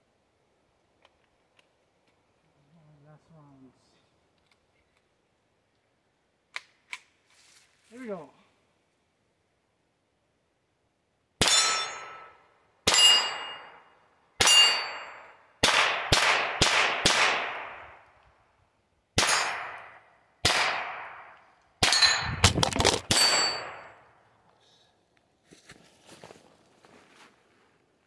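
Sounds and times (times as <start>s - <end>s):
pistol gunshots: 15.6s - 17.9s, 19.2s - 23.9s.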